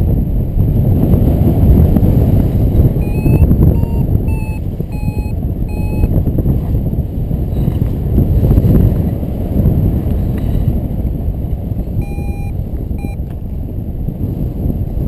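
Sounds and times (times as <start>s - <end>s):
wind buffeting microphone: 0.0s - 15.0s
short electronic beeps: 3.0s - 6.1s, 12.0s - 13.2s.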